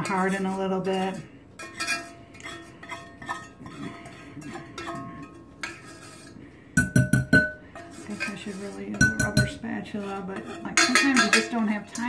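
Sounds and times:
utensil scraping metal saucepan: 0:00.0 - 0:12.0
metal pan ringing: 0:01.6 - 0:05.8, 0:06.8 - 0:09.7, 0:10.6 - 0:12.0.

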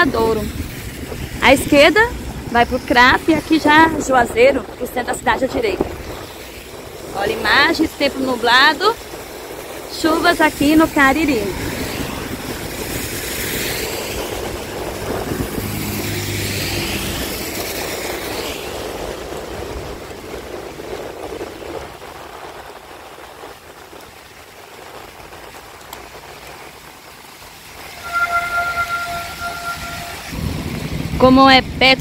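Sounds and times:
engine hum: 0:00.0 - 0:21.3
tyres hissing on wet road: 0:00.0 - 0:32.0.

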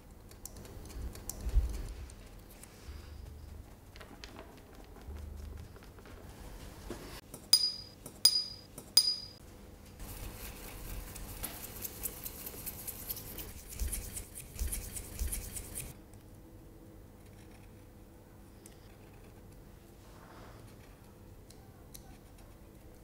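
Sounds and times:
paintbrush clinking on glass jar: 0:07.6 - 0:09.4
wet brush scrubbing paper: 0:10.0 - 0:15.9.

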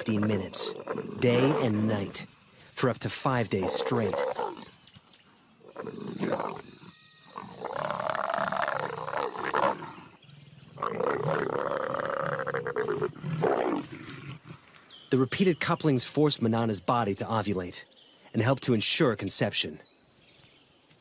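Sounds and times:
leopards growling and snarling: 0:00.0 - 0:02.2, 0:03.5 - 0:04.8, 0:05.6 - 0:14.8.

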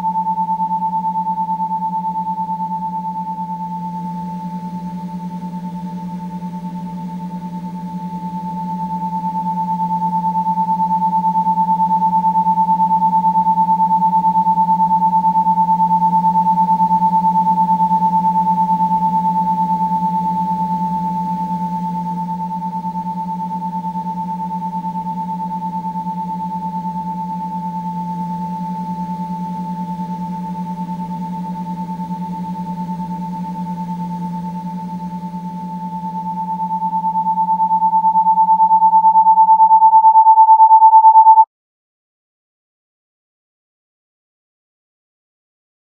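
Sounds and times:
low electronic hum: 0:00.0 - 0:41.4
high electronic tone: 0:35.3 - 0:41.4.

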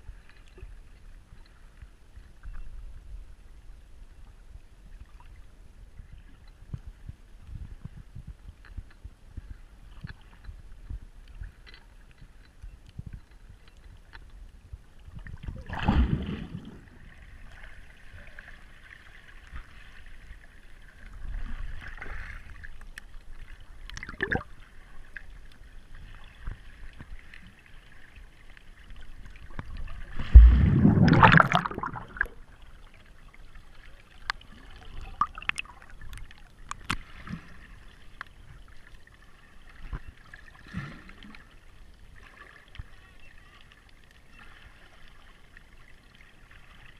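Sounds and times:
muffled underwater gurgling: 0:24.0 - 0:24.4, 0:30.2 - 0:32.5
rushing surges of water: 0:30.2 - 0:32.4.

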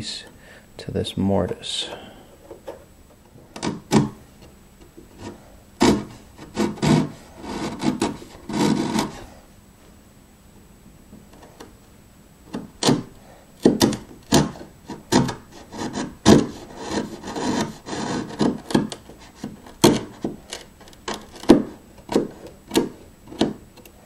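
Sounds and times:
blade scraping wood: 0:05.1 - 0:09.4, 0:13.7 - 0:23.6
blade cutting into wood: 0:05.2 - 0:09.2.

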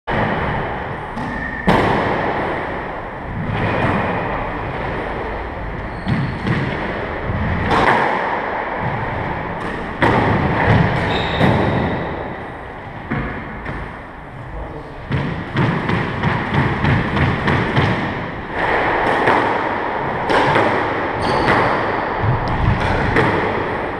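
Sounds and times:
squash ball thuds: 0:06.0 - 0:12.4, 0:13.0 - 0:14.1, 0:15.0 - 0:23.8.

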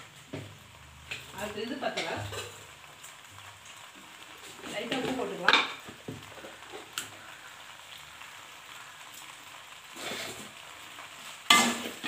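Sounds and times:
pasta sizzling in pot: 0:00.0 - 0:12.0.

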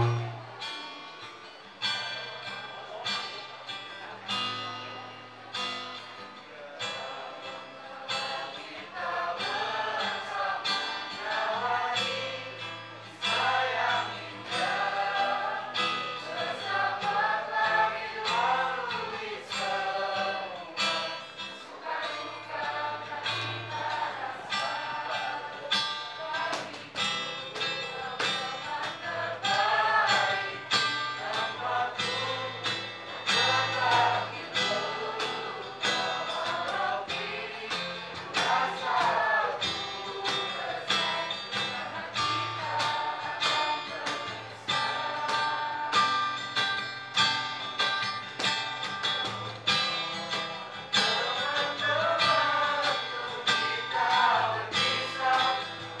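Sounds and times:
cajon beat: 0:00.0 - 0:00.6, 0:25.8 - 0:56.0
choir singing: 0:00.0 - 0:00.7, 0:06.5 - 0:48.1, 0:49.6 - 0:56.0
acoustic guitar: 0:00.0 - 0:56.0.

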